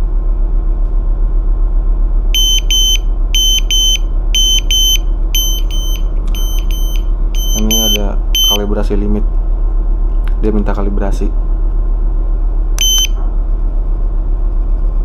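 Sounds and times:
steady low hum: 0.0s - 15.0s
alarm buzzer double beeps: 2.4s - 8.7s, 12.8s - 13.2s.

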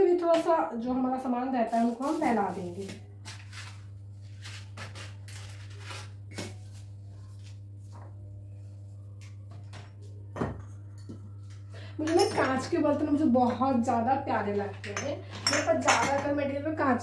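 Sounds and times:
steady low hum: 0.0s - 17.0s
steel bowls clinking: 12.0s - 16.4s.

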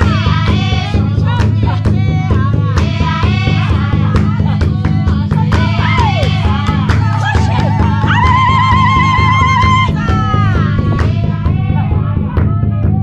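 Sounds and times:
drum beaten in steady rhythm: 0.0s - 13.0s
women singing together: 0.0s - 13.0s.

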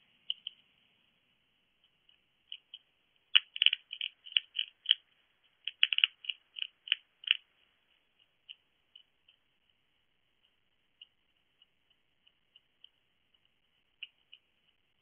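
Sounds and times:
hedgehog crunching dry food: 2.5s - 7.5s.

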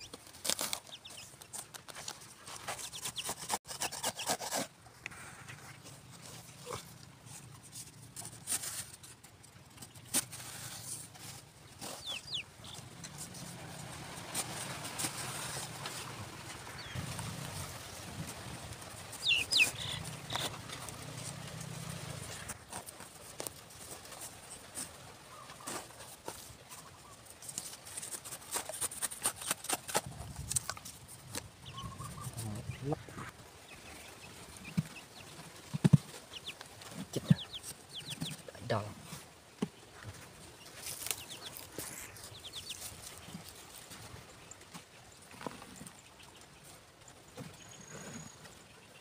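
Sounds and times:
hand tool scraping sandy soil: 0.0s - 9.1s, 13.1s - 16.2s, 27.5s - 30.7s
hands scraping dry soil: 0.0s - 33.0s, 39.9s - 44.3s.

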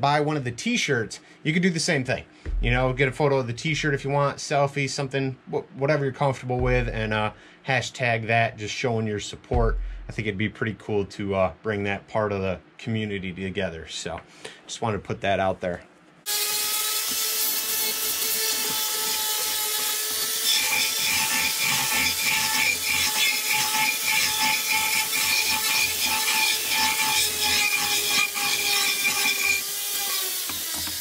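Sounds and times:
rotary tool whining: 16.3s - 31.0s.

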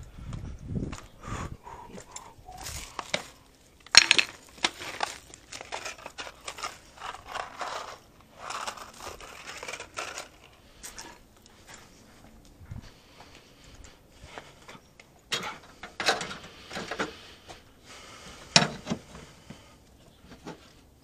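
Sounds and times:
tools rustling and clinking in bag: 2.1s - 11.9s.

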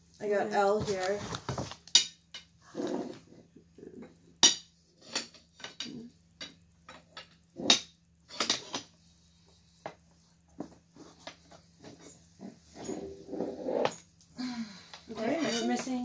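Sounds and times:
metal tubes clinking: 15.1s - 16.0s.

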